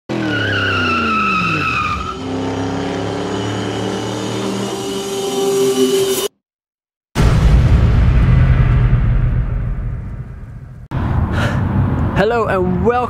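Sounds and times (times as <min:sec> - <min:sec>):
car engine pulling away: 0:00.1 - 0:05.2
car tires squealing: 0:00.1 - 0:05.2.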